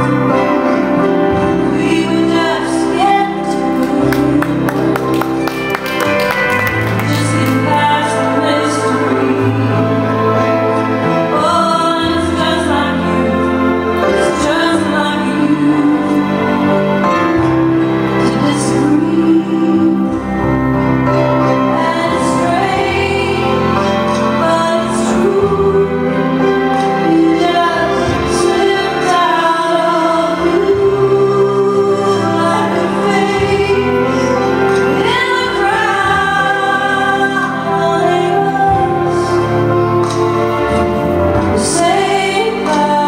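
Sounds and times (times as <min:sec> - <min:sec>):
slow song with singing voice: 0:00.0 - 0:43.0.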